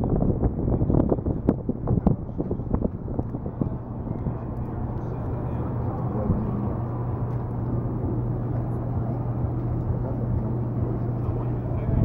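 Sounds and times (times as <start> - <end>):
steady low hum: 0.0 - 12.0
wind noise on microphone: 0.0 - 12.0
faint chatter of voices: 0.7 - 12.0.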